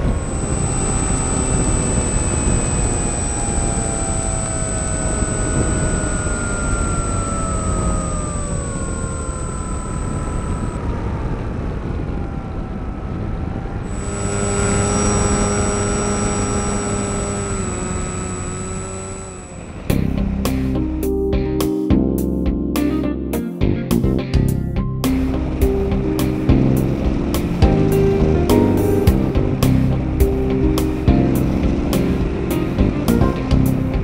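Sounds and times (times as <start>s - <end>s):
model aircraft motor and propeller: 0.0s - 20.5s
thin high whine: 0.0s - 34.0s.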